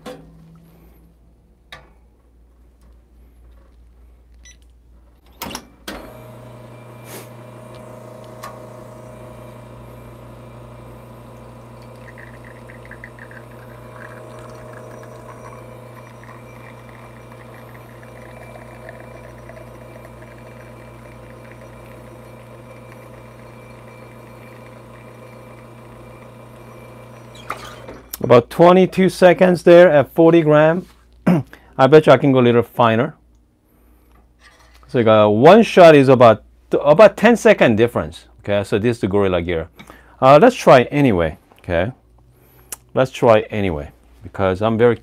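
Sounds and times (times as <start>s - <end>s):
espresso machine pump humming: 6.0s - 28.0s.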